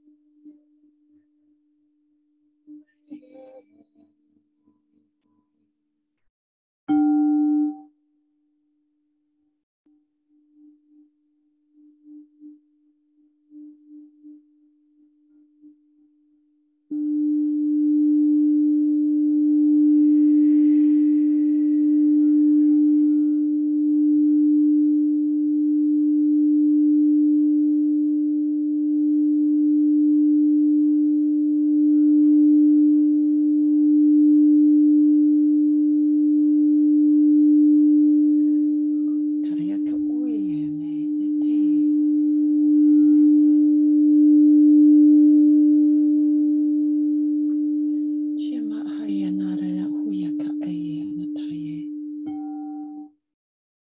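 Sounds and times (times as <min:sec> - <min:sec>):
crystal singing bowl tone: 0:06.9 - 0:08.0, 0:16.9 - 0:53.2.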